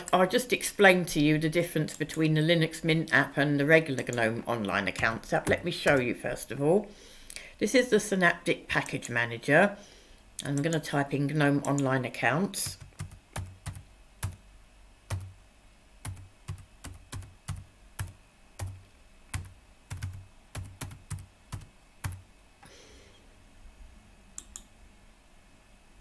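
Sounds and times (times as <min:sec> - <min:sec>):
keyboard typing clicks: 0:05.0 - 0:06.0, 0:12.6 - 0:14.4, 0:24.4 - 0:24.7.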